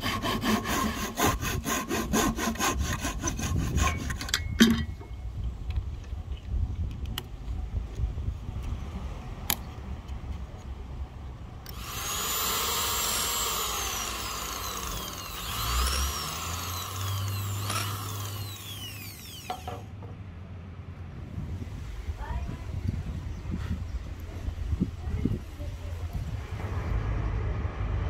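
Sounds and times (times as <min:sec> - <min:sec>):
electric drill boring into wood: 0:11.7 - 0:19.8.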